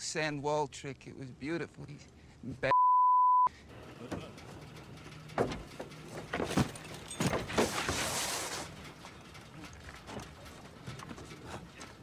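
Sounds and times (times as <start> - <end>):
short high beep: 2.7 - 3.5
creaking bending metal: 3.6 - 12.0.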